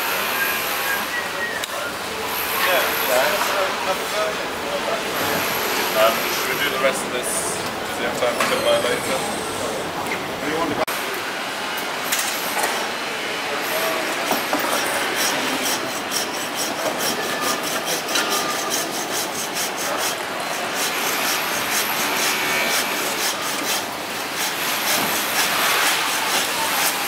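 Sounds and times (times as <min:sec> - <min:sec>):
hand bone saw cutting bone: 0:14.7 - 0:27.0.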